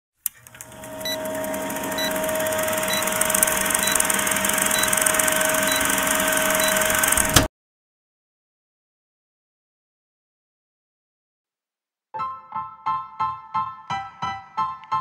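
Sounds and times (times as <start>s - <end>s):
film projector whirr and clatter: 0.2s - 7.5s
short high beep: 4.7s - 5.0s, 5.6s - 6.9s.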